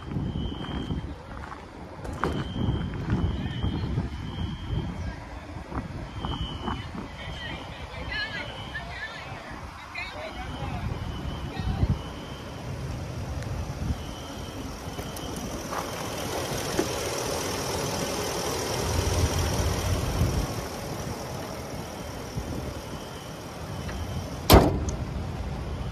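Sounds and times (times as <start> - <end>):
truck engine idling: 9.6 - 25.9
hood slamming shut: 23.8 - 25.1.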